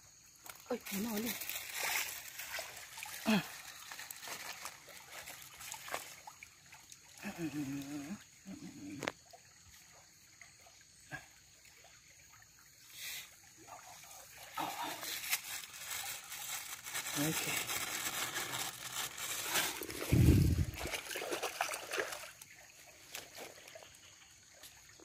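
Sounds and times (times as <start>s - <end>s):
stream water trickling: 0.0s - 25.0s.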